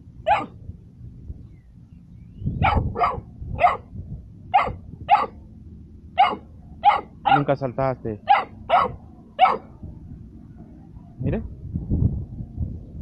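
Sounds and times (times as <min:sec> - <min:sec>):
puppy barking: 0:00.2 - 0:00.5, 0:02.6 - 0:03.9, 0:04.5 - 0:05.4, 0:06.2 - 0:07.5, 0:08.2 - 0:09.7.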